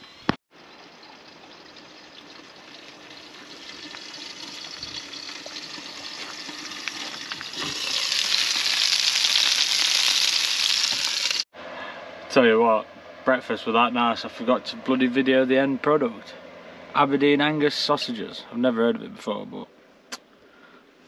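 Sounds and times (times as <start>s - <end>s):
sausages sizzling in a pan: 2.0s - 11.4s.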